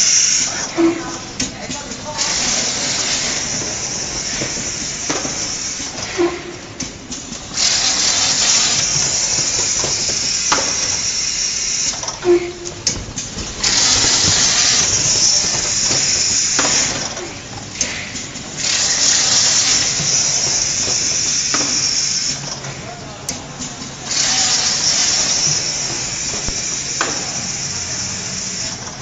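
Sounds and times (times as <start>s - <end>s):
loud compressed-air hiss: 0.0s - 29.0s
machine clunks: 0.3s - 7.4s, 8.4s - 23.9s.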